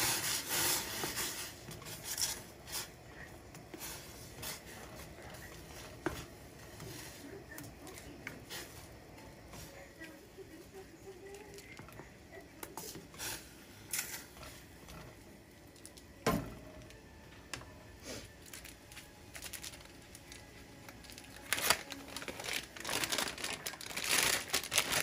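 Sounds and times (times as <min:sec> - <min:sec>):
noodles boiling hard: 0:00.0 - 0:25.0
crinkling: 0:18.2 - 0:25.0.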